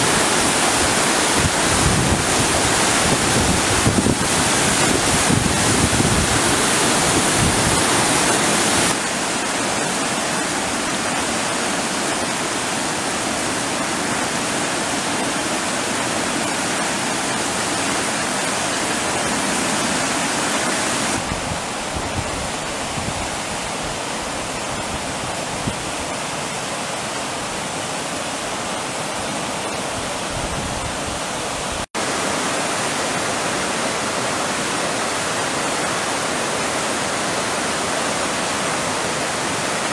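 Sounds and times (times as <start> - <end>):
floodwater rushing down a creek: 0.0 - 39.9
wind buffeting microphone: 1.4 - 9.0.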